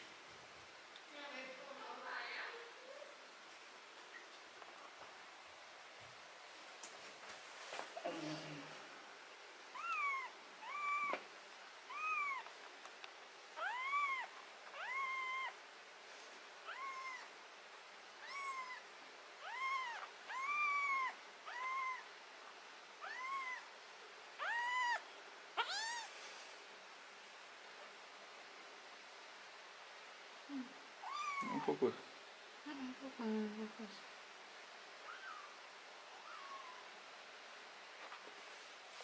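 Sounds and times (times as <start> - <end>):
kitten meowing: 9.7 - 11.2, 11.9 - 12.5, 13.6 - 15.6, 16.7 - 17.3, 18.2 - 18.8, 19.4 - 22.1, 23.0 - 23.7, 24.4 - 25.0, 25.6 - 26.1, 31.0 - 31.8, 35.0 - 35.6, 36.2 - 36.9.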